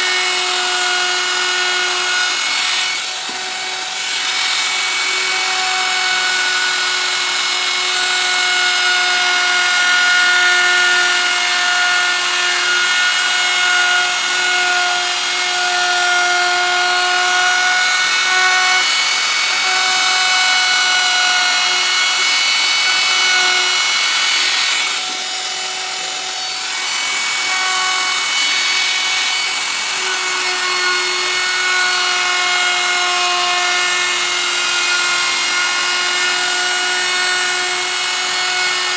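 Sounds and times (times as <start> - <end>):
router cutting wood: 0.0 - 38.9.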